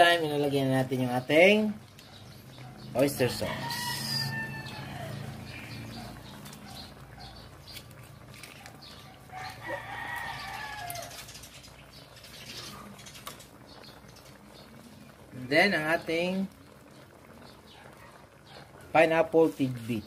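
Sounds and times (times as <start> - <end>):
braise simmering in a wok: 0.0 - 20.0
crackling pops: 6.0 - 14.9.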